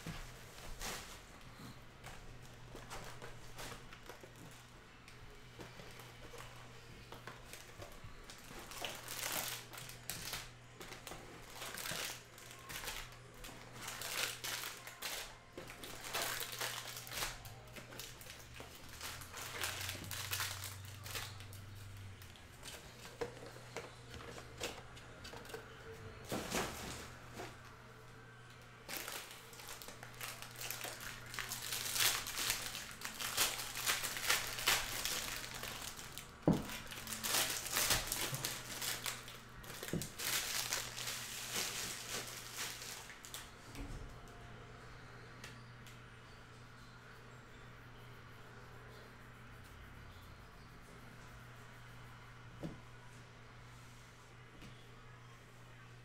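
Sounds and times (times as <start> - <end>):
foil wrappers tearing and crinkling: 7.5 - 21.7, 28.9 - 43.5.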